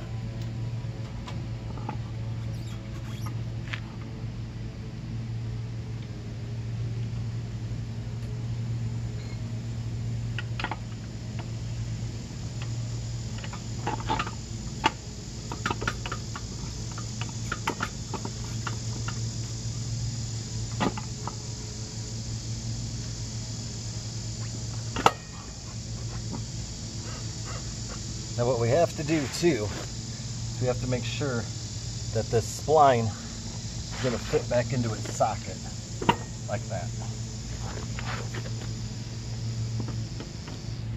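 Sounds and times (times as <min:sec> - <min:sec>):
insects droning: 0:00.0 - 0:40.9.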